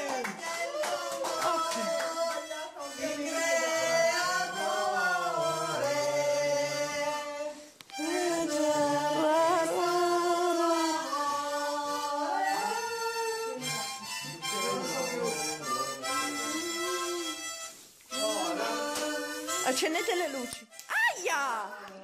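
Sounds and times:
person singing long notes: 0.0 - 13.6, 16.0 - 19.8.

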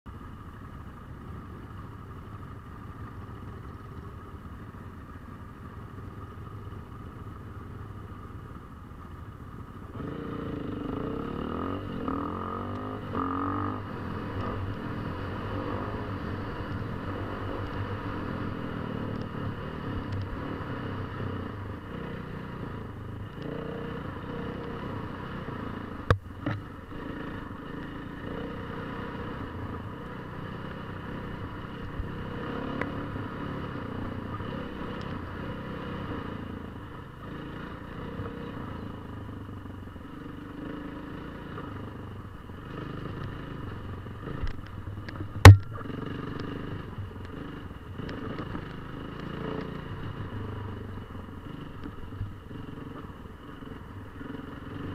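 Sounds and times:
motorcycle engine revving: 9.8 - 54.9
sharp knock: 45.4 - 45.8.

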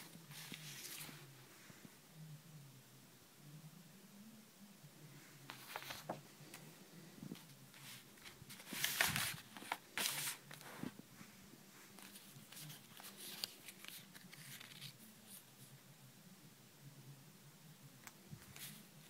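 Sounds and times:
paper stickers rustling: 5.5 - 6.6, 7.4 - 10.9, 11.9 - 15.0.

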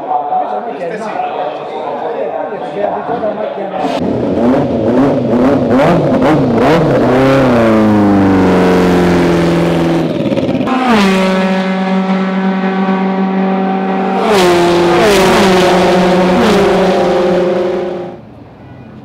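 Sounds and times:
racing car engine at high revs: 3.9 - 18.2.

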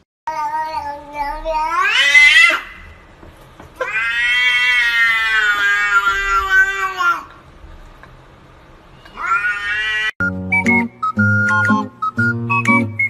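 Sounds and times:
cat yowling: 0.5 - 2.9, 3.8 - 7.3, 9.1 - 10.2.

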